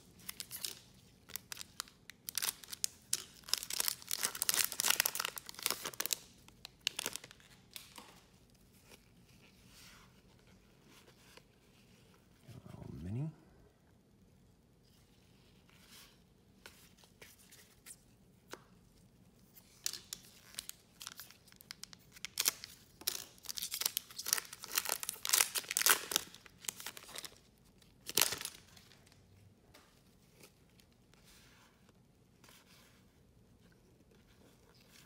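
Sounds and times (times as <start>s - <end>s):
wrapper crinkling and tearing: 0.2s - 8.0s, 19.7s - 29.2s.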